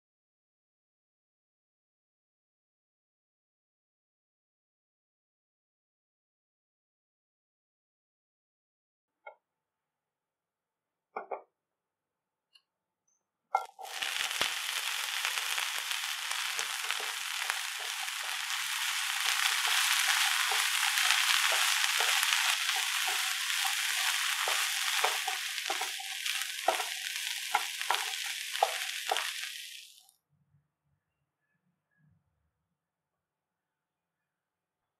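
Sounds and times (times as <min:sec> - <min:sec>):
wooden spatula tapping pan: 0:13.6 - 0:29.6
baby corn sizzling in hot oil: 0:13.6 - 0:30.0.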